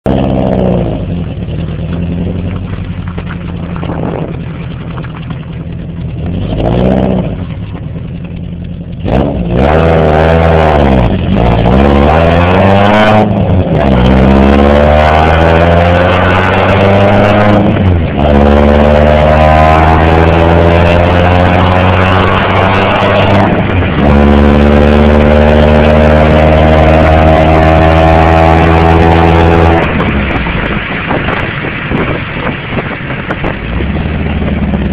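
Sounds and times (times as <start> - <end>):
car engine revving and accelerating: 0.0 - 34.9.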